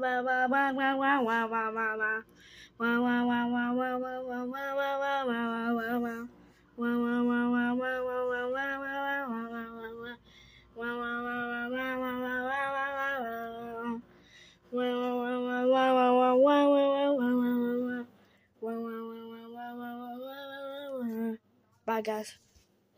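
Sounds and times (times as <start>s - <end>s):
person singing long held notes: 0.0s - 10.2s, 10.8s - 14.0s, 14.7s - 21.3s.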